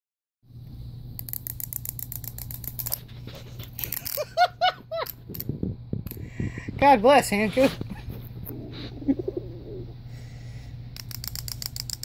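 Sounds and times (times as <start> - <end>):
wind-up toy ratchet clicks: 1.2 - 3.0, 3.8 - 4.2, 11.0 - 12.0.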